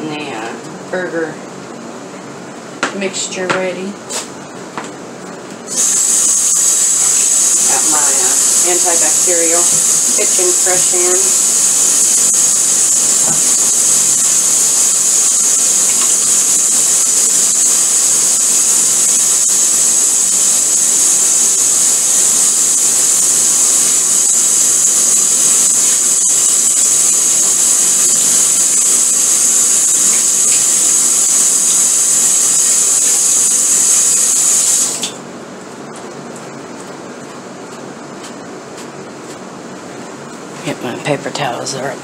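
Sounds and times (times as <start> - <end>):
tap water running into sink: 5.7 - 19.2, 30.0 - 30.9.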